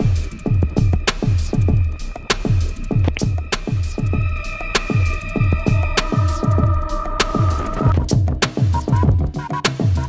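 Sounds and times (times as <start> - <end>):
held synth tones: 0.0 - 8.1
electronic music: 0.0 - 10.0
heavy kick drum beat: 0.0 - 10.0
crisp percussion clicks: 0.2 - 5.3.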